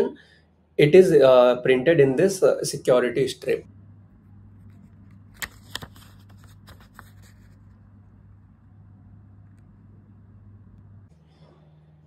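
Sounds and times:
steady low hum: 0:00.0 - 0:12.0
banknote crinkling: 0:04.6 - 0:07.9.

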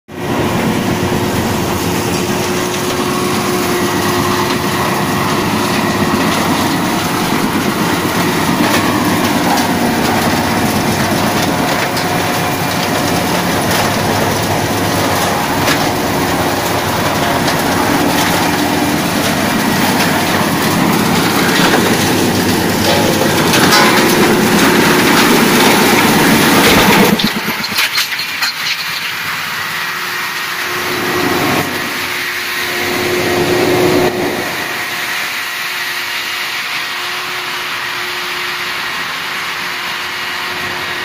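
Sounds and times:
tractor and rotor drone: 0:00.1 - 0:41.0
stones cracking: 0:07.3 - 0:29.2
stones clattering: 0:16.8 - 0:29.2.

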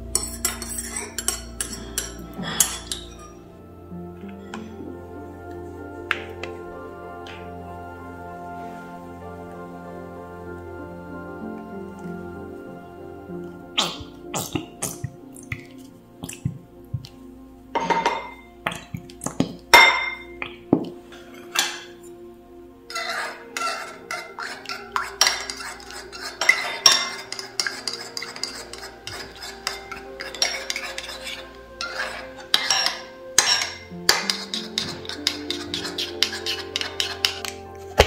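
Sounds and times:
soft background music: 0:00.0 - 0:38.0
spoon stirring in bowl: 0:00.1 - 0:03.4, 0:17.8 - 0:22.0, 0:22.9 - 0:38.0.

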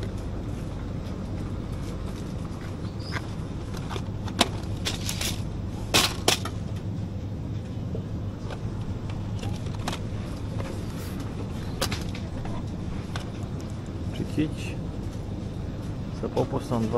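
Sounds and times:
low hum: 0:00.0 - 0:16.9
goods being handled clicks and knocks: 0:01.0 - 0:06.9, 0:08.4 - 0:13.9.

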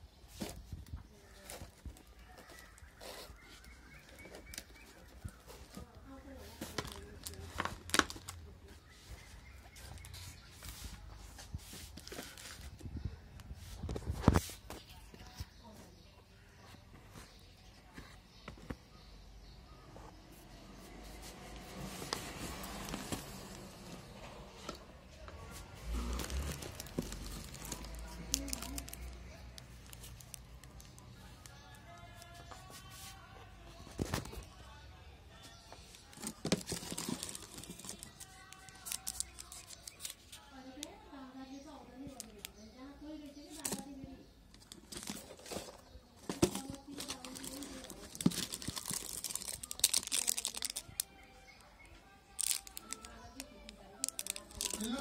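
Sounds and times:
wrappers crinkling: 0:01.3 - 0:08.5, 0:21.7 - 0:24.0, 0:25.8 - 0:33.2, 0:35.9 - 0:41.0, 0:44.5 - 0:51.7, 0:52.3 - 0:55.0.

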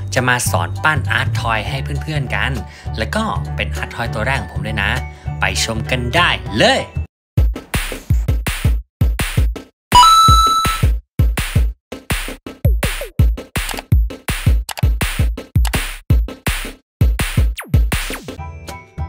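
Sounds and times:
electronic music with drum beat: 0:07.6 - 0:18.4
bright ding: 0:10.0 - 0:10.9.

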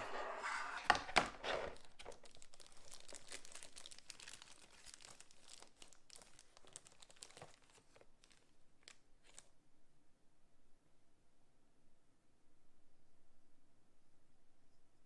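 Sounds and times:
plastic bag crinkling: 0:01.4 - 0:09.5.

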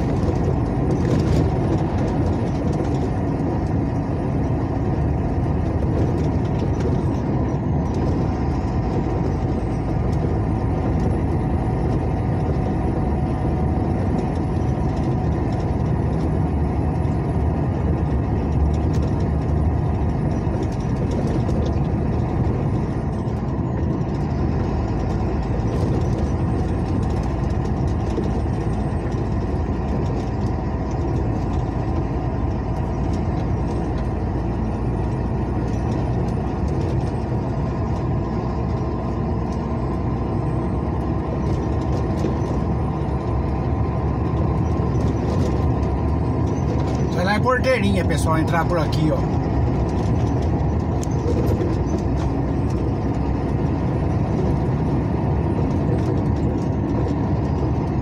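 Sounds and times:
truck engine and road noise: 0:00.0 - 0:58.0.

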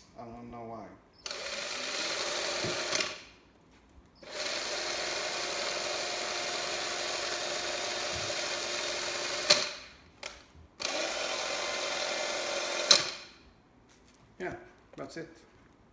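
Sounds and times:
electric drill motor whine: 0:01.2 - 0:03.2, 0:04.2 - 0:09.9, 0:10.8 - 0:13.2.

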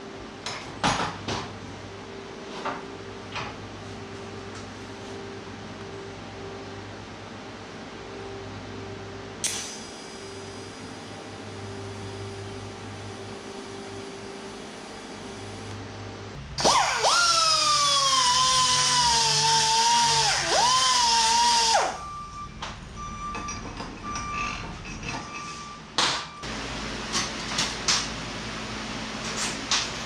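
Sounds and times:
electric drill whining: 0:16.6 - 0:22.0.

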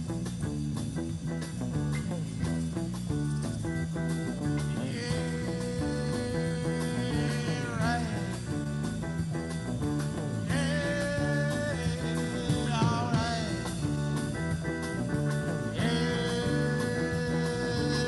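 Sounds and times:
live rock band playing: 0:00.0 - 0:18.0
person singing: 0:04.7 - 0:09.0, 0:10.2 - 0:14.6, 0:15.3 - 0:18.0.

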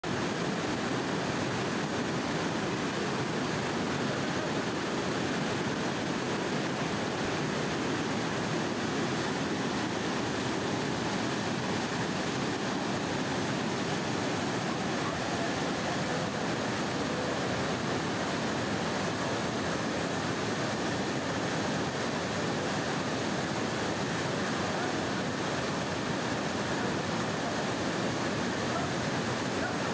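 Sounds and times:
waterfall rushing: 0:00.1 - 0:29.9.

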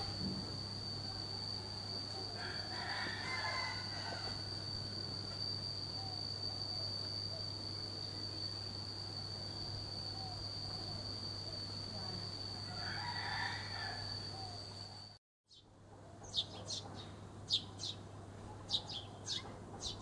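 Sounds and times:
low hum: 0:00.0 - 0:12.8
high-pitched whine: 0:00.0 - 0:15.2
rooster crowing: 0:01.5 - 0:05.5, 0:12.3 - 0:15.1.

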